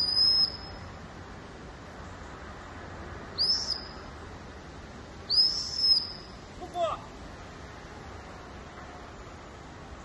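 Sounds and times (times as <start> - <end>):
shrill whistle blasts: 0.0 - 0.8, 5.3 - 6.3.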